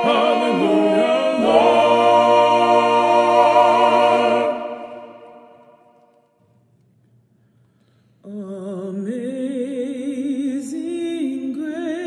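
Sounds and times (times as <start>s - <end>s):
a cappella choir holding chord: 0.0s - 5.8s.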